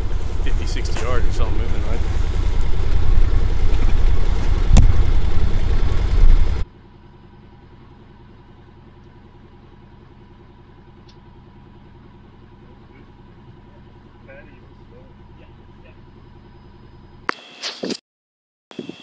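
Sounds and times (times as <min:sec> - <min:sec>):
utility vehicle low rumble: 0:00.0 - 0:17.3
sharp knock: 0:04.7 - 0:05.0.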